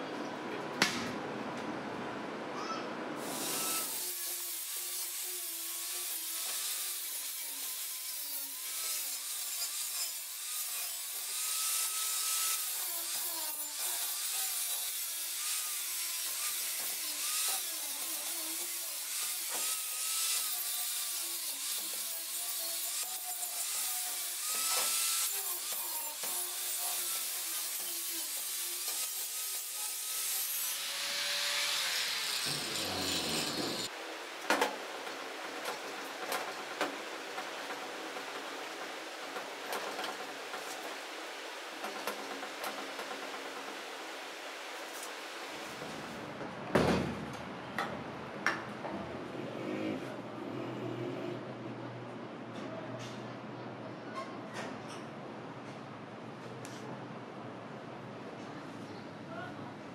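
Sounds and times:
angle grinder grinding metal: 0:03.2 - 0:34.0.

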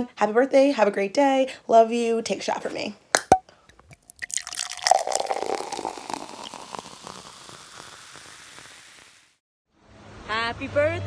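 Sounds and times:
liquid pouring: 0:03.7 - 0:09.3.

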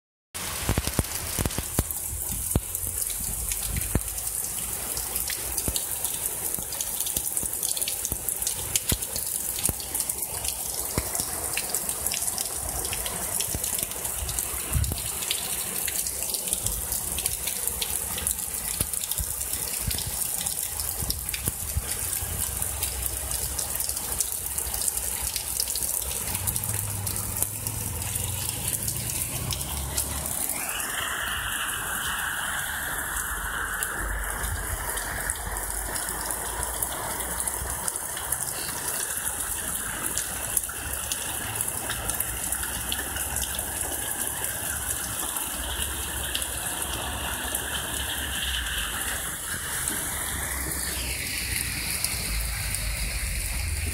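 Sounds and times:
heavy rain pouring: 0:00.4 - 0:53.9
raindrops ticking: 0:00.4 - 0:53.9
low wind rumble: 0:29.8 - 0:36.1.

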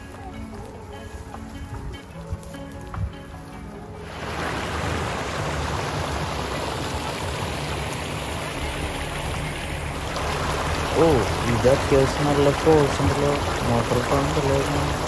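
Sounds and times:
waterfall pouring into pond: 0:04.0 - 0:15.0.

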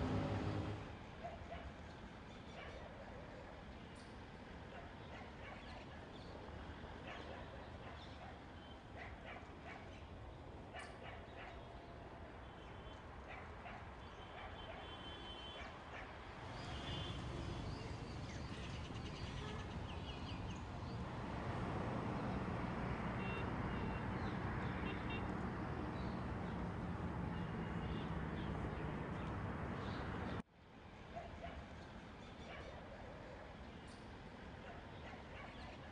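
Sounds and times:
distant traffic rumble: 0:00.0 - 0:02.3, 0:15.5 - 0:35.9.

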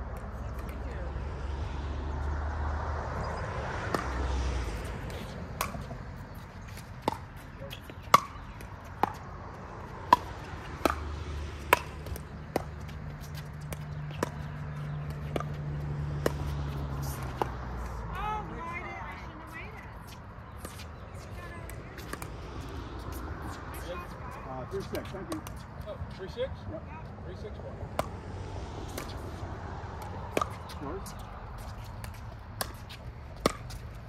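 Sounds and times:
pickleball paddle hits: 0:05.1 - 0:06.0, 0:07.0 - 0:09.2, 0:10.0 - 0:12.8, 0:27.9 - 0:28.2, 0:30.0 - 0:30.7, 0:32.0 - 0:33.8.

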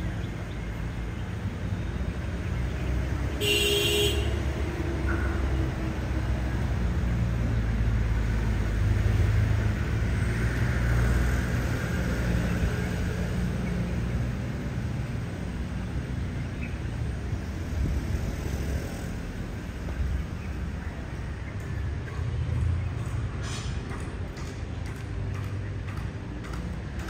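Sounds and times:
vehicle engine rumble: 0:00.0 - 0:27.0.

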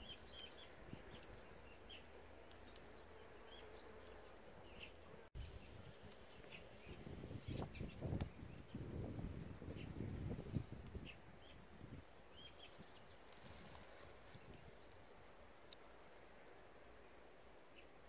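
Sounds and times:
small birds chirping: 0:00.0 - 0:15.9, 0:16.5 - 0:18.0
bee buzzing: 0:02.6 - 0:05.4.

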